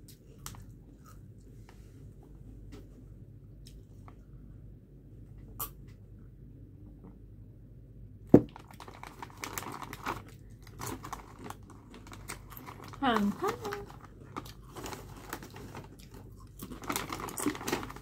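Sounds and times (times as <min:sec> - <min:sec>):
plastic chip bag crinkling: 0:08.4 - 0:18.0
chips crunching: 0:08.6 - 0:18.0.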